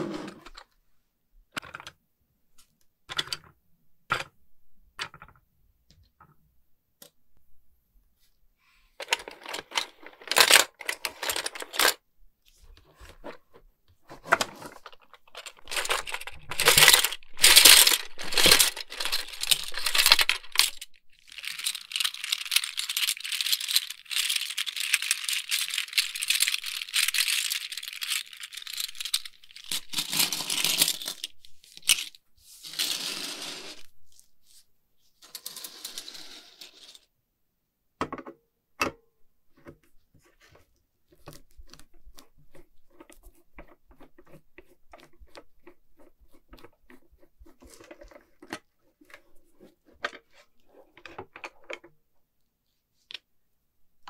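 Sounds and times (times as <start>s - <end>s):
plastic toy pieces clattering: 9.0s - 12.0s, 14.2s - 33.9s.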